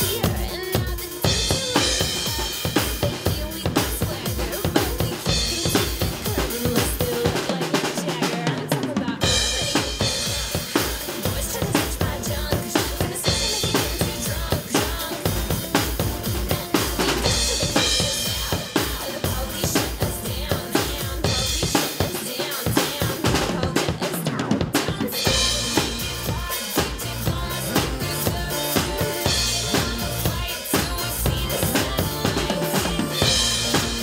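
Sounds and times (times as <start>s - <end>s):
acoustic drum kit beat: 0.0s - 34.0s
bass drum thumps: 9.2s - 18.7s, 25.3s - 34.0s.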